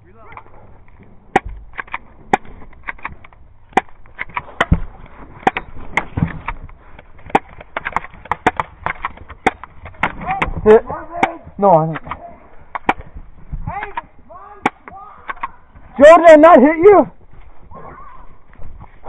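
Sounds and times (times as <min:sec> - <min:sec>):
airsoft guns firing: 0:07.2 - 0:13.1, 0:13.8 - 0:15.6.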